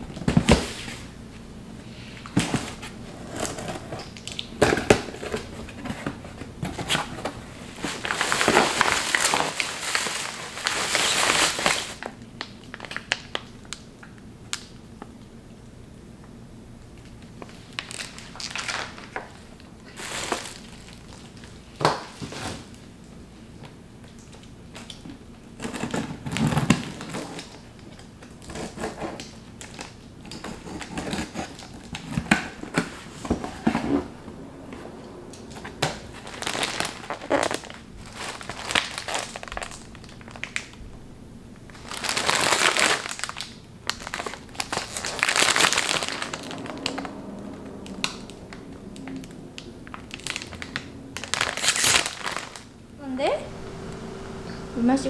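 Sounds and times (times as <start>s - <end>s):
plastic packaging crinkling: 7.8s - 14.7s, 17.1s - 22.8s, 35.9s - 41.0s, 41.6s - 47.2s, 47.9s - 52.7s.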